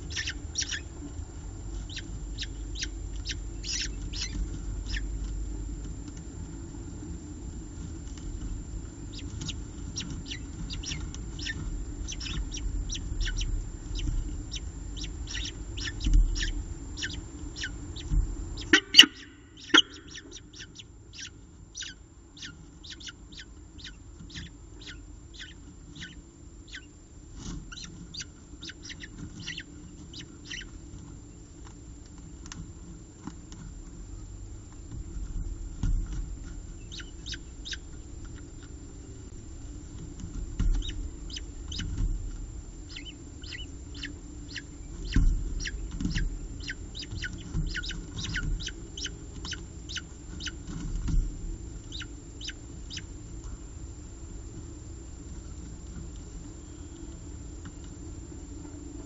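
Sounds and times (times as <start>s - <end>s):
falcon chicks cheeping: 0.0s - 5.4s, 9.0s - 27.0s, 27.6s - 31.6s, 36.7s - 39.3s, 40.0s - 42.2s, 42.8s - 51.2s, 51.8s - 53.4s.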